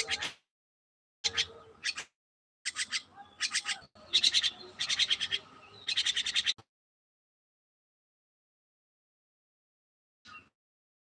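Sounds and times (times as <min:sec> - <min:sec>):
myna chattering: 0:02.7 - 0:06.6.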